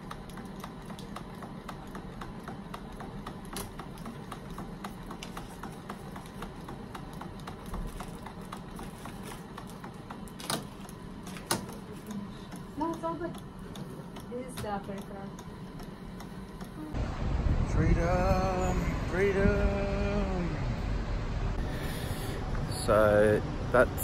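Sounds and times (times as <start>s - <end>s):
machine pumps ticking: 0.0s - 17.0s
steady machine hum: 0.0s - 24.0s.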